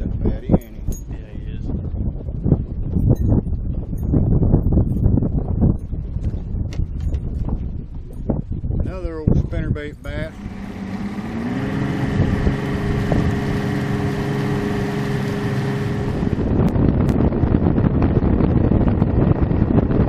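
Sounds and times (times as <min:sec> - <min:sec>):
rush of wind and water: 0:00.0 - 0:20.0
wind buffeting microphone: 0:00.0 - 0:20.0
outboard motor running: 0:09.3 - 0:20.0.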